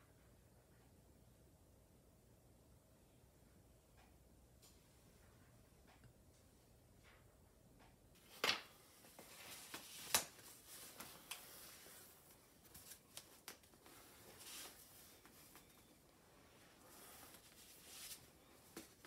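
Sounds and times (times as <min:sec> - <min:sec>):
scroll rustling: 0:08.2 - 0:19.0.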